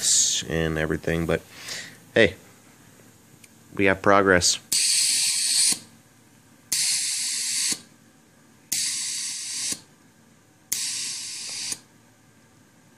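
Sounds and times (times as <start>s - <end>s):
compressed air hissing: 4.7s - 5.9s, 6.7s - 7.8s, 8.7s - 9.8s, 10.7s - 11.8s.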